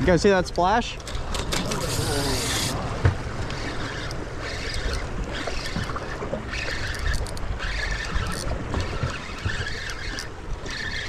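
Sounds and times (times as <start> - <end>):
outboard motors running: 0.0 - 11.0
water noise: 0.0 - 11.0
wind: 0.0 - 11.0
fishing reel whirring: 1.3 - 11.0.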